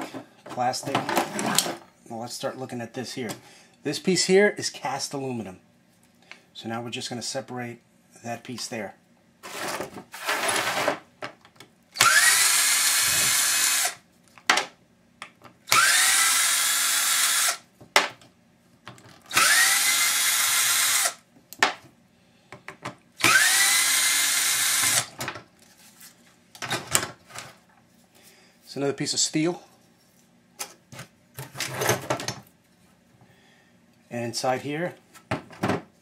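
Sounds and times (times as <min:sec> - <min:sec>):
power drill spinning: 0:12.0 - 0:14.0, 0:15.7 - 0:17.6, 0:19.3 - 0:21.2, 0:23.2 - 0:25.1.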